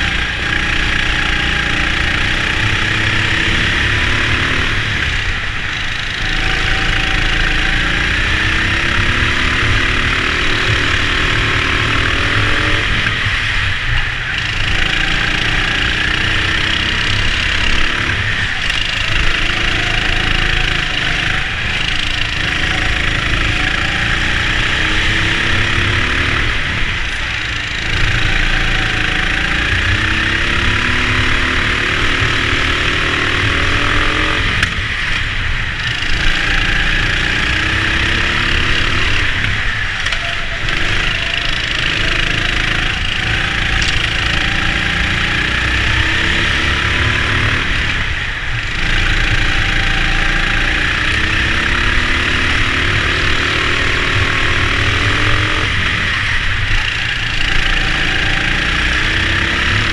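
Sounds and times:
go-kart motor revving: 0.0 - 59.9
rushing noise: 0.0 - 59.9.

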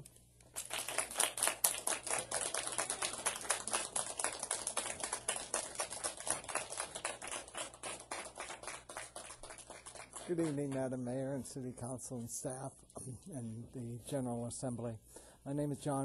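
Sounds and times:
audience applauding: 0.6 - 10.9.

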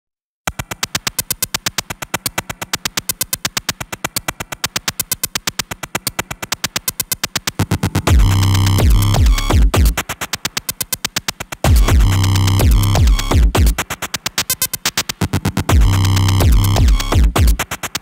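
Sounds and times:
heavy bass: 7.6 - 10.0, 11.7 - 13.8, 15.2 - 17.6.

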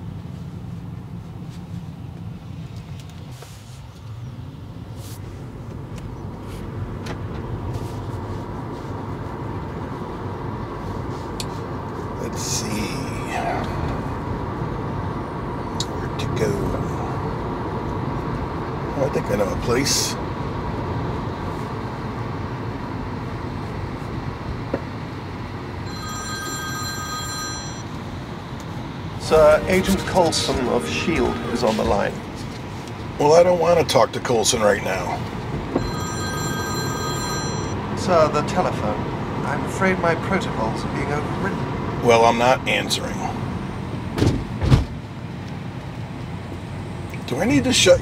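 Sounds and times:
tyre and road noise in car: 0.0 - 30.6, 35.1 - 38.0, 43.2 - 48.0
phone ringtone: 25.8 - 28.0, 35.8 - 37.9.

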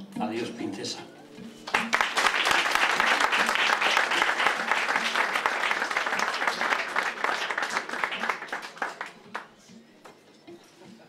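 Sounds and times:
audience applauding: 1.6 - 9.5.

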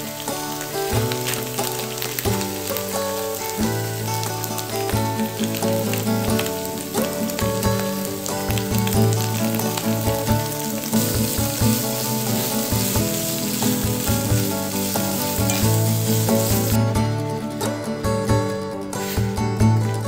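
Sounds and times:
food sizzling in a frying pan: 0.0 - 17.0
background music: 0.0 - 20.0
chopsticks stirring: 7.9 - 16.8.

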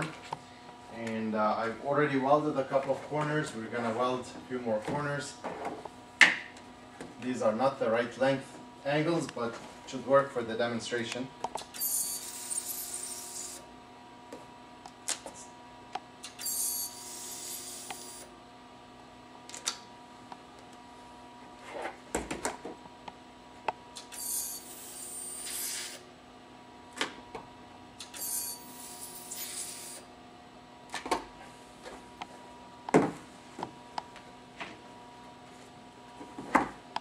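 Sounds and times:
ultrasonic welder hissing: 12.1 - 13.6, 16.3 - 18.2, 24.0 - 26.0, 28.0 - 30.0.

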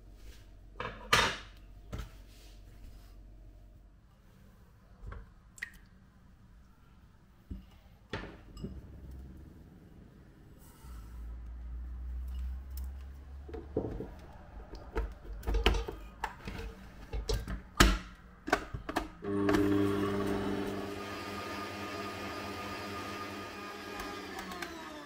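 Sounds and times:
low rumble: 8.4 - 12.2.

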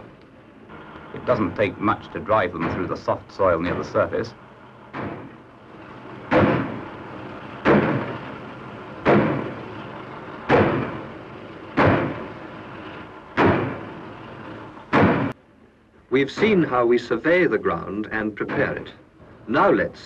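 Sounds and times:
steady mechanical noise: 0.0 - 20.0
pile hammer striking pile: 6.3 - 6.9, 7.6 - 8.3, 9.0 - 9.6, 10.5 - 11.0, 11.8 - 12.3, 13.4 - 13.9.

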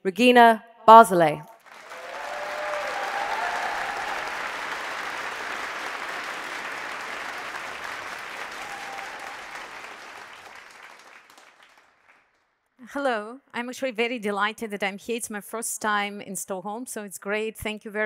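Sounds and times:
audience applauding: 1.6 - 12.4.

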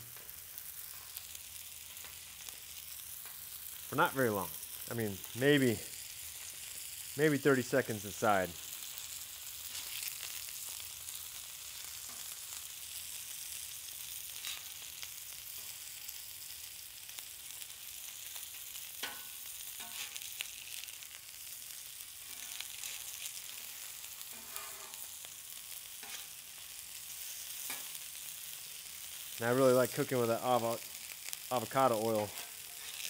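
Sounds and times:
fish sizzling on a griddle: 0.0 - 33.0
metal spatula scraping steel: 19.8 - 20.2, 24.2 - 25.1, 26.0 - 26.4, 32.3 - 33.0.

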